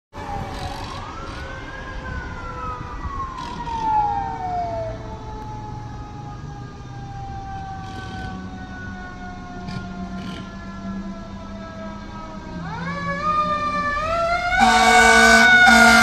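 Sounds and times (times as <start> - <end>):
fire engine siren wailing: 0.2 - 16.0
steady siren tone: 0.2 - 16.0.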